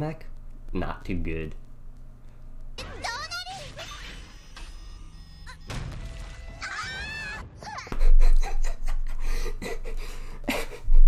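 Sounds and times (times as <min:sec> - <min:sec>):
anime soundtrack music: 0:02.8 - 0:08.9.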